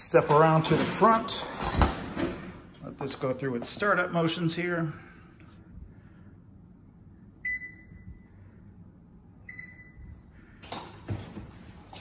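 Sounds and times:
oven control panel beeping: 0:07.4 - 0:08.2, 0:09.4 - 0:10.1.

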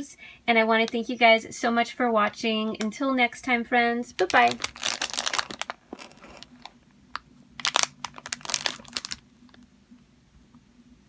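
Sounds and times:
cellophane crinkling: 0:04.2 - 0:09.6.

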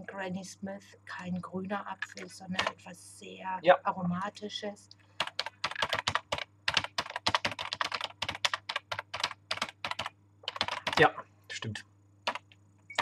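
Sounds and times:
typing on a keyboard: 0:05.2 - 0:11.1, 0:12.2 - 0:13.0.

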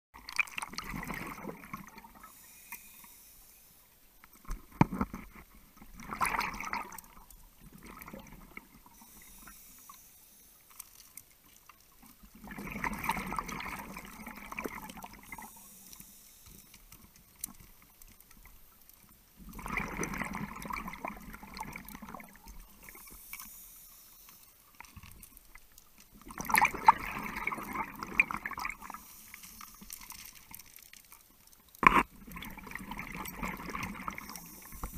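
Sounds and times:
exhaled bubbles streaming: 0:00.2 - 0:02.3, 0:05.9 - 0:09.2, 0:12.2 - 0:15.5, 0:19.4 - 0:23.0, 0:26.2 - 0:29.1, 0:31.8 - 0:34.9
faint clicks: 0:15.7 - 0:19.2.

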